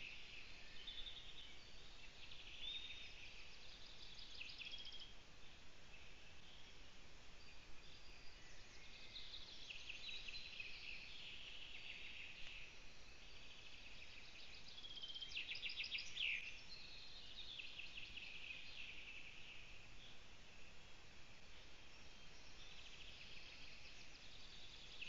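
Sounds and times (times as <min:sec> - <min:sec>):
songbirds trilling: 0:00.0 - 0:25.0
steady hiss: 0:00.0 - 0:25.0.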